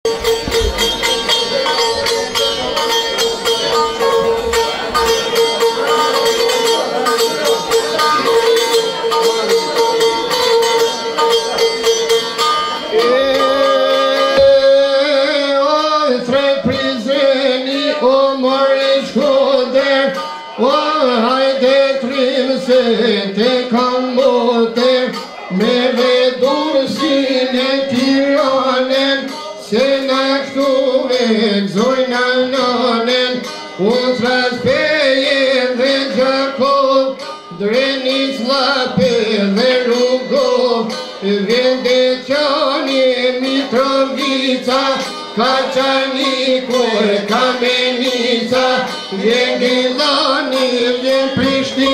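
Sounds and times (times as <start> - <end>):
plucked lute folk melody: 0.0 - 51.9
man singing: 12.9 - 51.9.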